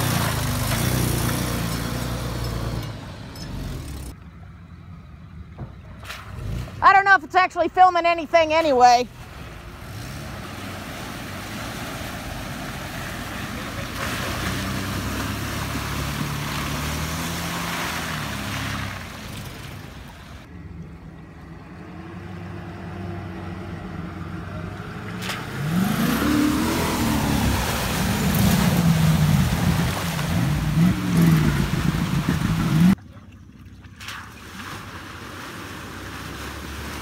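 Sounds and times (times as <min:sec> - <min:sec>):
truck engine revving: 0:00.0 - 0:04.2, 0:09.5 - 0:33.0
truck driving through water: 0:00.0 - 0:07.4, 0:08.7 - 0:37.0.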